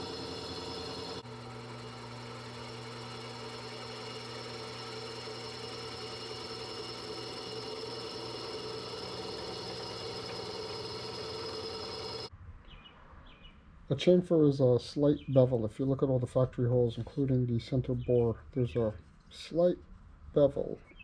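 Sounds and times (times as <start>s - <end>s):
drill press cutting iron: 0.0s - 12.3s.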